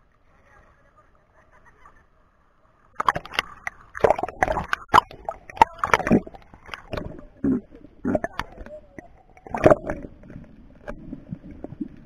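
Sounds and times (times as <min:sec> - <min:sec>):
splashes and clicks: 0:02.9 - 0:12.0
water sloshing against camera housing: 0:03.0 - 0:07.3.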